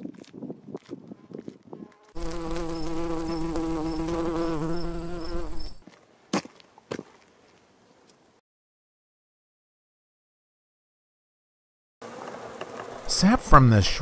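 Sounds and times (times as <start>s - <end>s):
footsteps on dirt road: 0.0s - 2.7s, 5.6s - 8.3s
bee buzzing: 1.8s - 5.8s.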